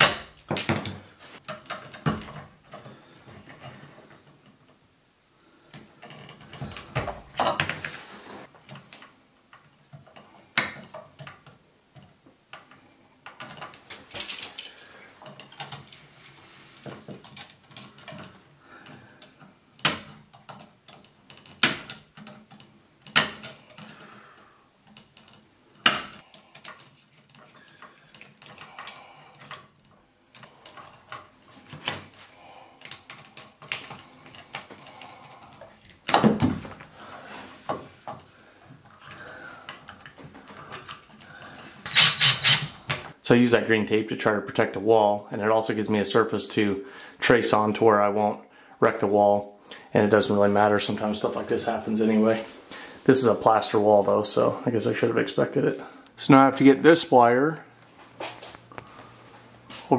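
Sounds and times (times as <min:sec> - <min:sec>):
rustling: 0:05.4 - 0:10.4.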